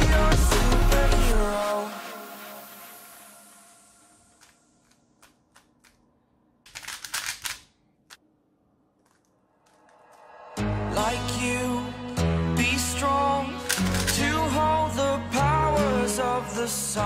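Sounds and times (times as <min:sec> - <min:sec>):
background music: 0:00.0 - 0:04.8, 0:10.0 - 0:17.0
puzzle cube clacking turns: 0:04.3 - 0:08.2, 0:13.6 - 0:14.4.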